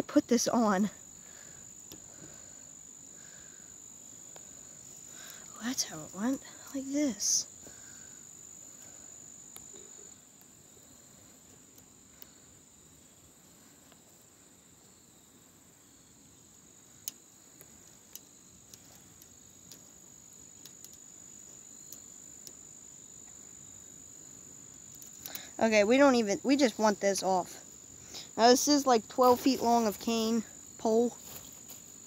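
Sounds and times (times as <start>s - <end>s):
crickets chirring: 0.0s - 32.0s
thin wire clicking: 17.8s - 19.9s, 20.6s - 21.0s, 24.9s - 25.5s.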